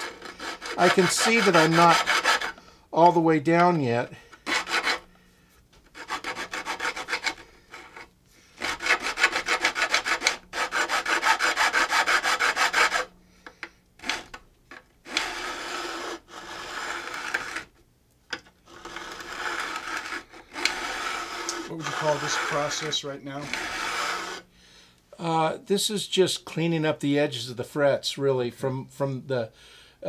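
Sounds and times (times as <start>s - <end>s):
file rasping on wood: 0.0s - 2.6s, 4.4s - 5.1s, 5.9s - 13.1s, 15.1s - 17.7s, 18.7s - 24.5s.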